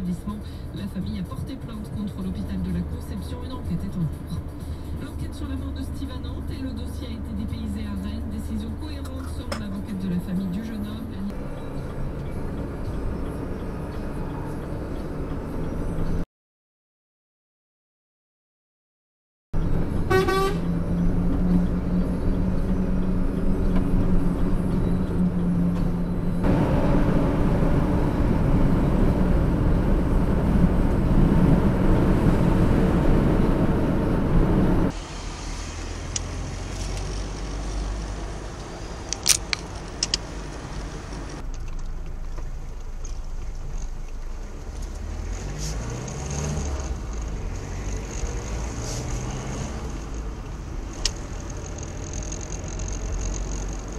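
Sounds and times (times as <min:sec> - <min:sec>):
vehicle engine and road noise: 0:00.0 - 0:16.3, 0:19.6 - 0:53.9
sharp clicks: 0:38.6 - 0:42.2.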